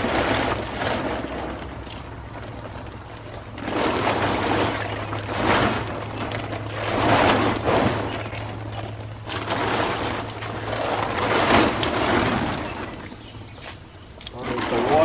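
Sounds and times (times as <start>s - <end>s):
plastic tarp rustling and crinkling: 0.0s - 15.0s
steady low hum: 0.0s - 15.0s.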